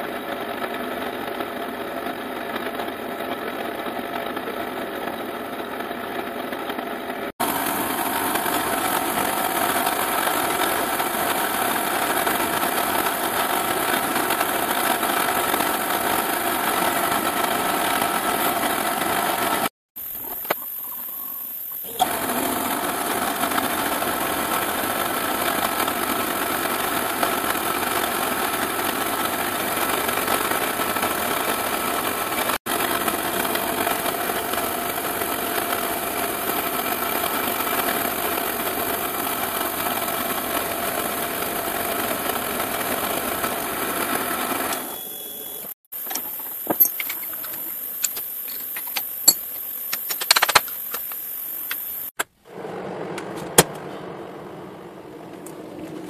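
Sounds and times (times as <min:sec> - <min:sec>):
milling machine spindle running: 0:07.4 - 0:49.4.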